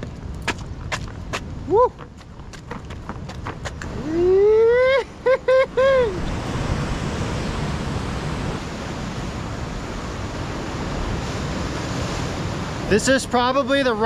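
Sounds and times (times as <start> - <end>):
man whooping and hooting: 1.6 - 2.0, 3.9 - 6.2.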